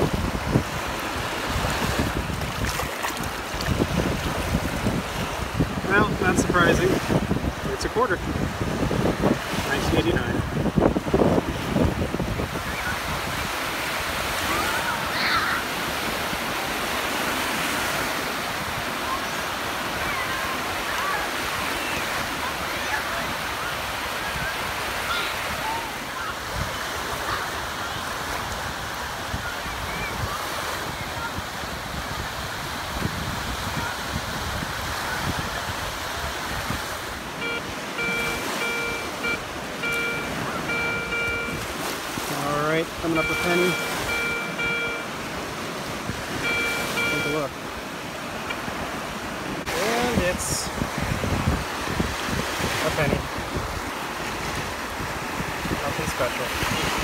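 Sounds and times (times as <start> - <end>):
wind on microphone: 0.0 - 47.8, 48.6 - 57.0
small waves breaking: 0.0 - 57.0
gulls calling: 37.2 - 48.6
metal detector beeping: 37.4 - 41.7, 43.0 - 45.4, 46.3 - 47.5.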